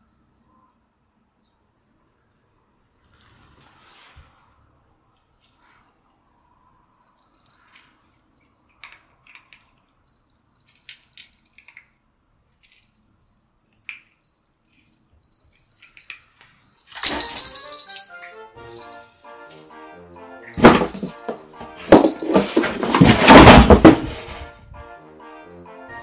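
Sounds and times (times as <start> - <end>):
loud clattering jangle: 5.4 - 12.0, 14.1 - 19.2, 20.1 - 24.4.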